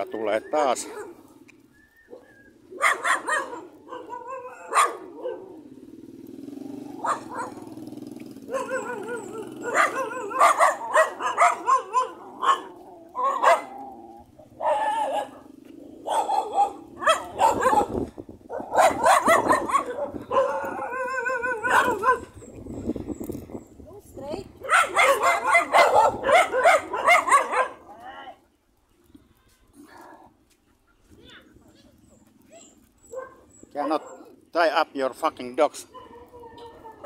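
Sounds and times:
dogs barking: 0.7 - 1.5, 2.1 - 6.0, 6.8 - 22.6, 24.6 - 28.0, 32.0 - 34.8, 35.8 - 37.0.

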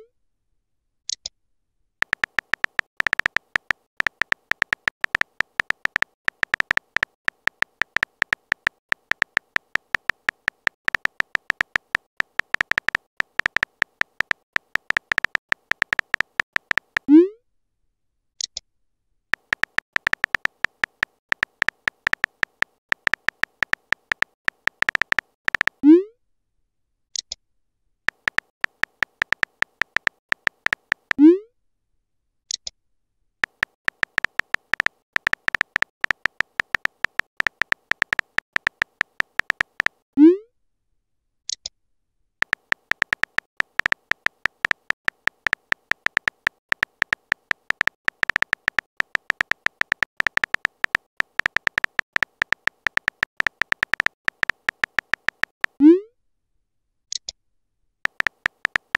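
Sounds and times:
phone keyboard typing clicks: 2.0 - 17.1, 19.3 - 25.8, 28.1 - 31.3, 33.4 - 40.0, 42.4 - 55.8, 58.0 - 58.9.

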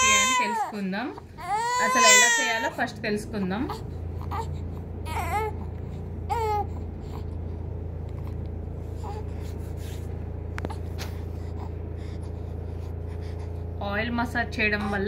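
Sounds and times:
infant fussing cries: 0.0 - 0.8, 1.4 - 2.8, 3.7 - 5.7, 6.3 - 7.2
steady low hum: 0.0 - 15.0.

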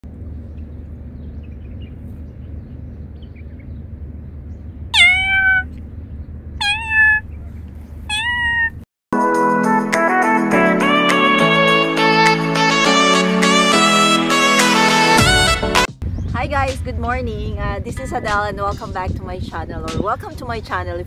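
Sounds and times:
low background rumble: 0.0 - 8.8, 16.0 - 21.0
cat meowing: 5.0 - 5.8, 6.6 - 8.8
music: 9.2 - 21.0.

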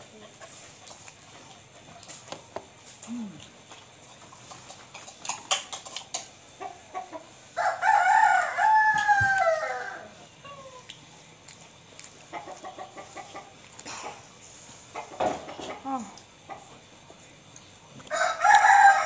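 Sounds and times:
rooster crowing: 7.6 - 10.6, 18.1 - 19.0.

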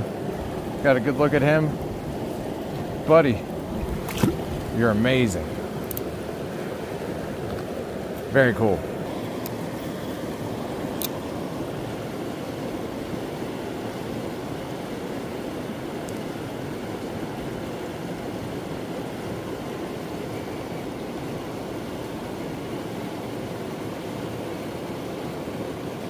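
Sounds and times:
creek water rushing over dam: 0.0 - 26.0.

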